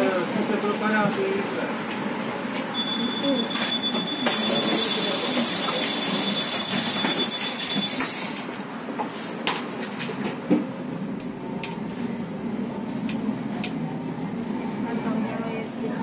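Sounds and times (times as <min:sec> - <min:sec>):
bus running rumble: 0:00.0 - 0:16.0
bus engine whine: 0:01.7 - 0:16.0.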